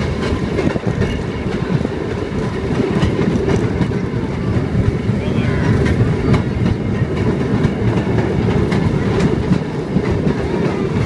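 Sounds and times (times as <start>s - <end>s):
train rumbling on rails: 0.0s - 11.0s.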